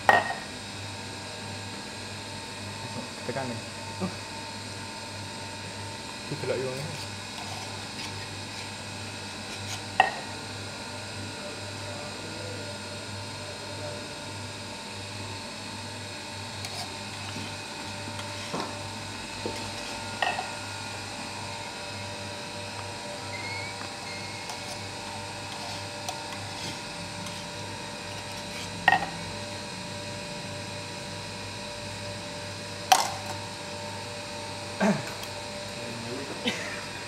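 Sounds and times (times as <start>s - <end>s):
low background hum: 16.4s - 30.1s.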